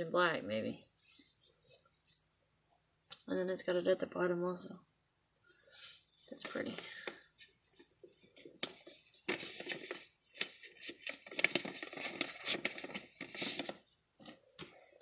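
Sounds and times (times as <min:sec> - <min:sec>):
paper rustling: 0:01.0 - 0:02.3, 0:05.7 - 0:15.0.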